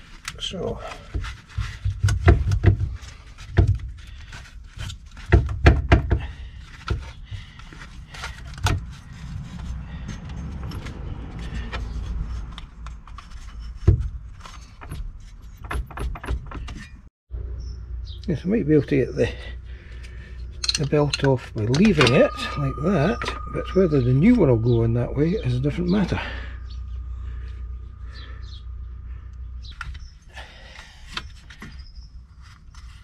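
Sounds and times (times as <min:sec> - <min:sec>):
low steady rumble: 0:17.3 - 0:31.2
metallic clinks of tools: 0:20.6 - 0:24.4.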